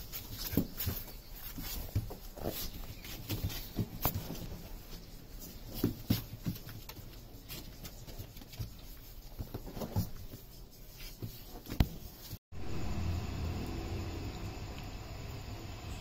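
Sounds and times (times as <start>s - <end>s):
paws scratching on cardboard: 0.0s - 12.4s.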